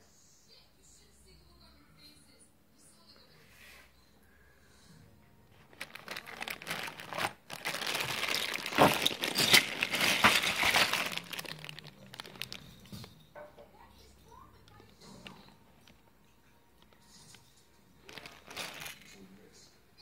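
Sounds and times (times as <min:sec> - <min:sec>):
plastic bag crinkling: 0:05.5 - 0:13.2, 0:14.7 - 0:16.1, 0:18.0 - 0:19.2
small plastic pieces shifting: 0:05.6 - 0:13.0, 0:18.0 - 0:19.2.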